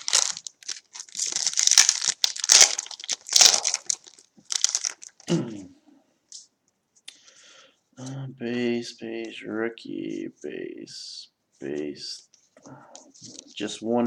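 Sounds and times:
wrapper crinkling and tearing: 0:00.0 - 0:05.3.

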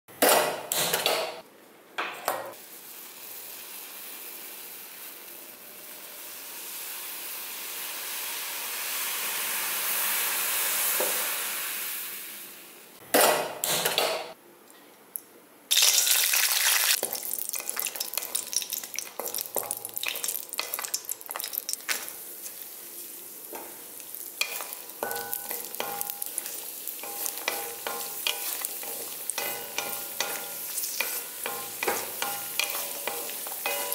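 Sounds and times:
nuts sizzling in oil: 0:02.5 - 0:12.8, 0:15.7 - 0:33.9
gas stove burner hissing: 0:21.9 - 0:33.9.

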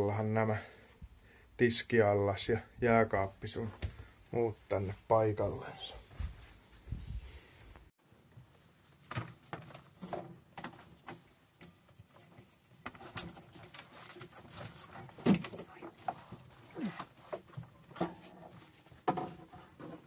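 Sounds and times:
wooden cabinets knocking and scraping: 0:14.4 - 0:20.0.

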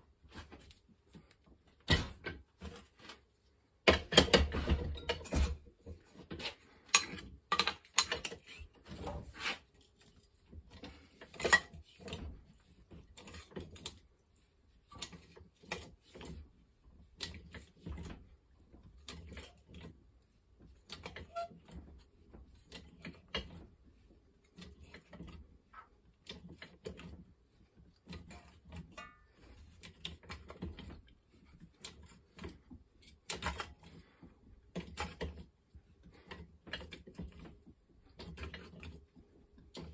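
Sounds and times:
metal clicks and clanks: 0:03.8 - 0:09.3.

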